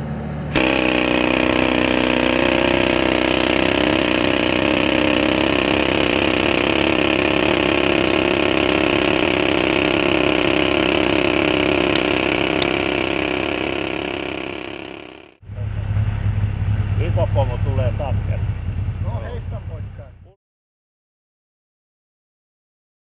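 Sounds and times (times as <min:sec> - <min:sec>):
low engine drone: 0:00.0 - 0:20.4
pneumatic rock drill hammering: 0:00.5 - 0:15.4.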